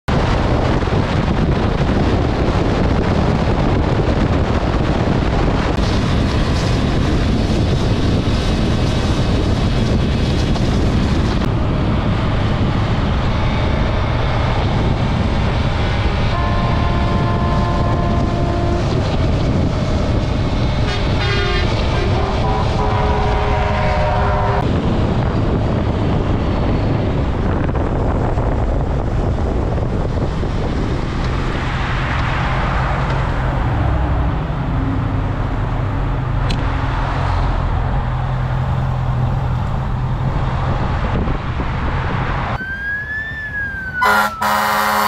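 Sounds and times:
heavy wind noise: 0.0 - 45.0
motorcycle engine and road noise: 0.0 - 45.0
fast-pulsing horn: 16.3 - 19.0, 20.9 - 24.6, 44.0 - 45.0
long vehicle horn blasts: 16.3 - 19.0, 20.9 - 24.6, 44.0 - 45.0.

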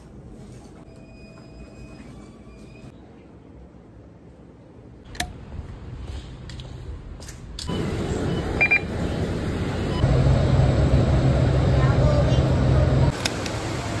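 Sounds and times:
road noise: 5.2 - 14.0
bus engine hum: 5.7 - 14.0
high electronic beep: 7.7 - 8.9.

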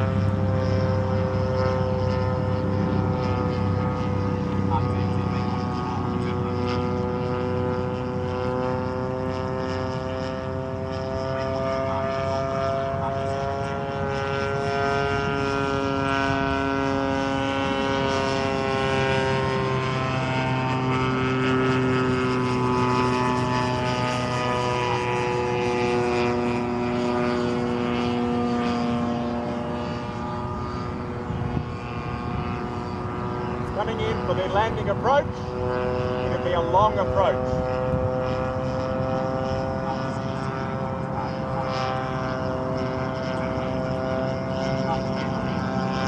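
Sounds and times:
model aircraft propeller drone: 0.0 - 46.0.

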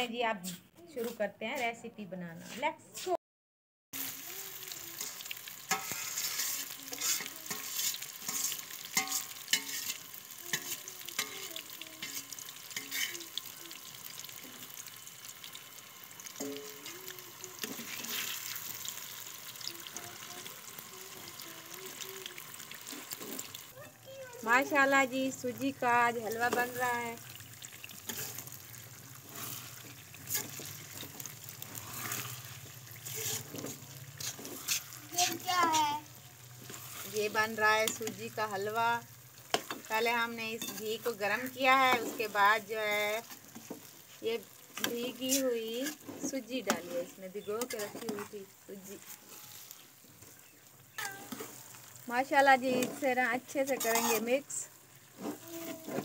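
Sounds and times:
semolina sizzling in ghee: 3.9 - 56.0
spoon clinking and scraping pan: 5.0 - 14.8, 16.2 - 16.9, 17.6 - 19.0, 24.7 - 35.8, 39.5 - 42.4, 44.7 - 48.4, 49.0 - 49.8, 50.9 - 51.9, 53.7 - 54.5.

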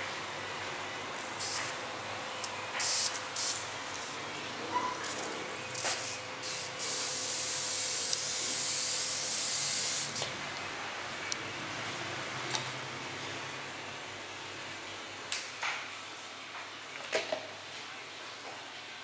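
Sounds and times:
mist sprayer hissing: 1.2 - 10.3.

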